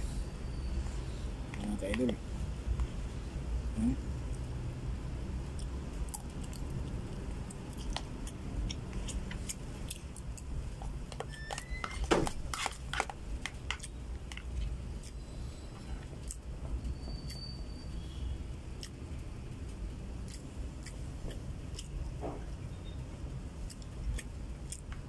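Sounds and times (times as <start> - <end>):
steady low hum: 0.0 - 25.0
spoon scraping plastic container: 11.1 - 14.4.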